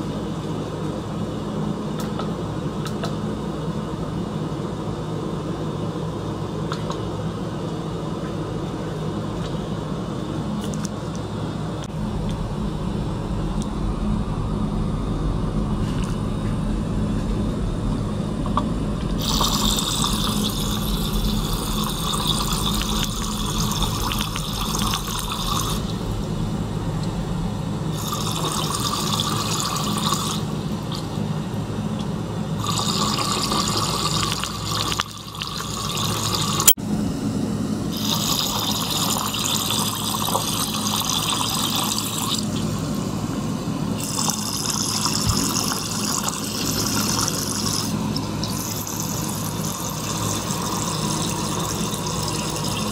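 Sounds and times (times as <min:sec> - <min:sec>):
pump hum: 0:00.0 - 0:52.9
water flowing and bubbling: 0:11.8 - 0:31.3, 0:32.6 - 0:36.7, 0:44.0 - 0:52.9.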